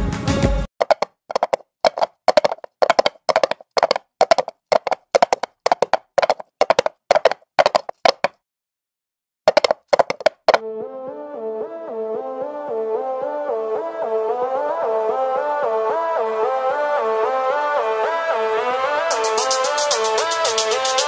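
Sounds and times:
percussion claps or knocks: 0.8s - 8.4s, 9.5s - 10.6s.

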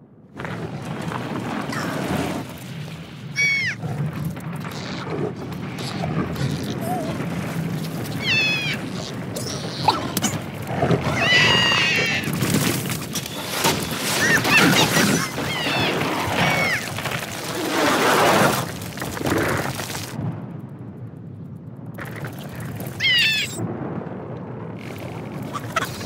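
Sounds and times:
cartoon squirrel shrieking: 3.4s - 3.8s, 8.1s - 10.4s, 11.1s - 12.4s, 13.8s - 17.0s, 23.0s - 23.6s, 25.5s - 26.0s.

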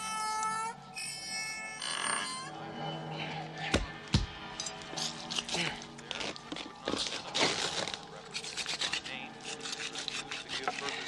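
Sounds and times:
harsh scraping and rasping: 4.9s - 11.0s.

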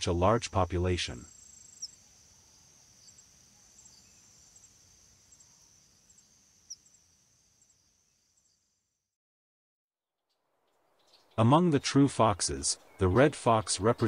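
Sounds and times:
insect chirps: 0.2s - 9.2s, 10.3s - 11.4s.

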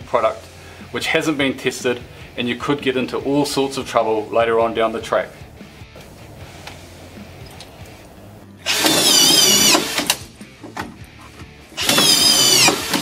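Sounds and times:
screw gun motor whining: 8.6s - 10.3s, 11.8s - 13.0s.

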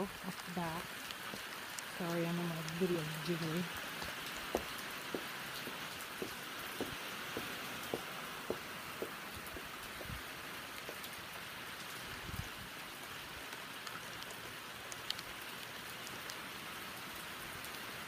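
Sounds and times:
heavy rain pouring: 0.0s - 18.0s
drops ticking close by: 1.1s - 11.2s
soft low thuds: 4.0s - 10.3s.

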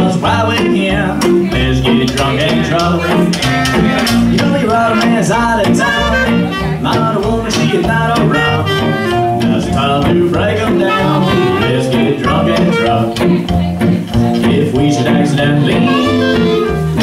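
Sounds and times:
acoustic guitar: 0.0s - 17.0s
keyboard: 0.0s - 17.0s
upright bass: 0.0s - 17.0s
clarinet melody: 2.9s - 7.0s, 7.6s - 9.5s, 10.6s - 13.2s, 15.6s - 17.0s.

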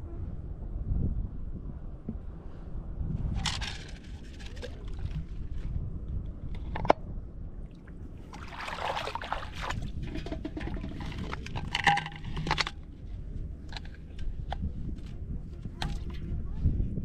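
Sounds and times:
wind rumbling on microphone: 0.0s - 17.0s
water splashing and sloshing: 3.4s - 5.8s, 7.6s - 13.1s.

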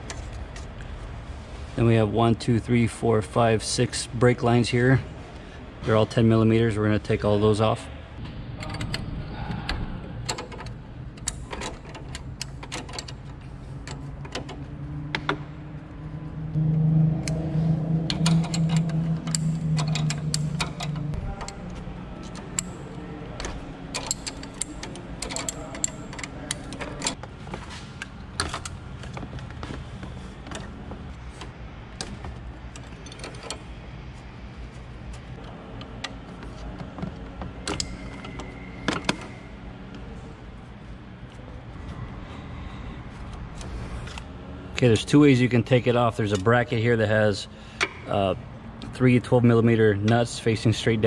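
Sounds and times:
steady low hum: 0.0s - 51.0s
wrench clicking on metal: 18.0s - 21.6s, 23.4s - 27.2s.

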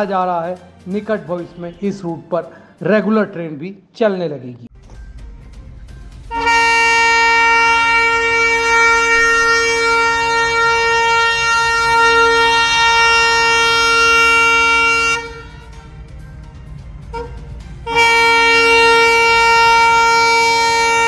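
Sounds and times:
locomotive air horn blast: 6.3s - 15.9s, 17.0s - 21.0s.

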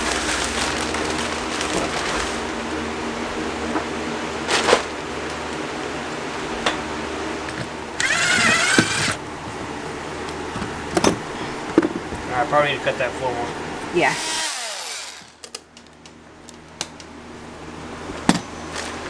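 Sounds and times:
plastic sheeting rustling: 0.0s - 2.7s.

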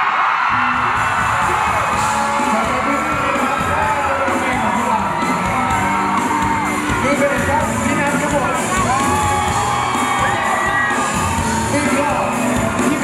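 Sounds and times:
crowd whooping and cheering: 0.0s - 13.0s
live pop band playing: 0.4s - 13.0s.

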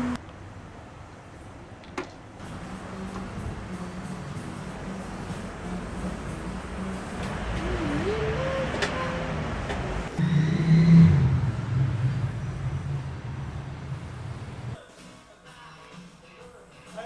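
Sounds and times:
vehicle engine passing: 0.0s - 0.2s, 2.4s - 14.8s
traffic rumble: 0.0s - 14.8s.

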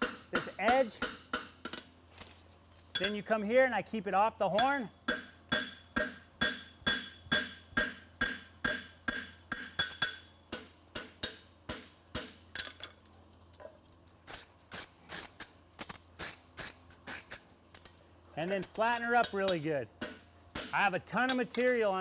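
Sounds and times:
hammer striking horseshoe on anvil: 0.0s - 1.9s, 2.9s - 3.3s, 4.6s - 12.9s, 18.6s - 21.7s.

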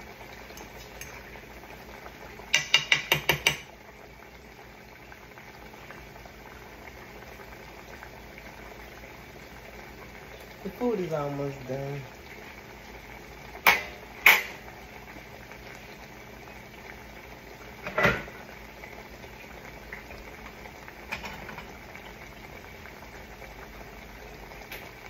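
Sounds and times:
food bubbling in pots: 0.0s - 25.0s
cookware knocking: 2.5s - 3.7s.

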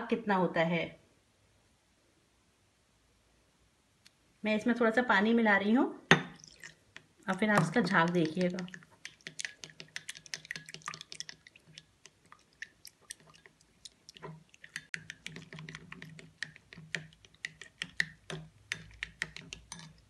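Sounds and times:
plastic spoon whisking in glass bowl: 6.6s - 20.0s.

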